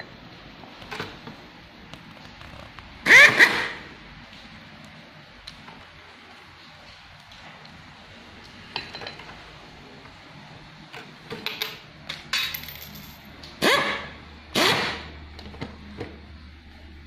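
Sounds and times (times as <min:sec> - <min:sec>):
screwdriver and metal parts clinking: 0:11.4 - 0:13.3.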